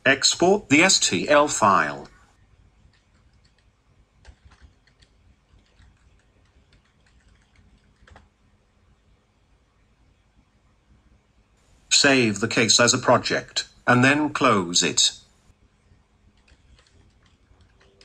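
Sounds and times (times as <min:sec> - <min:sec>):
faint keyboard typing: 0:02.0 - 0:08.4, 0:15.8 - 0:18.0.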